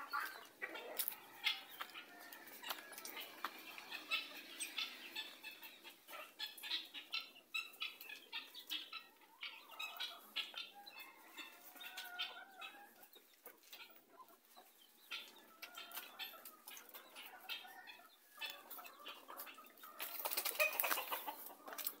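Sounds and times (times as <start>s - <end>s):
rooster clucking: 0.0s - 22.0s
rustling and crunching: 0.1s - 3.6s.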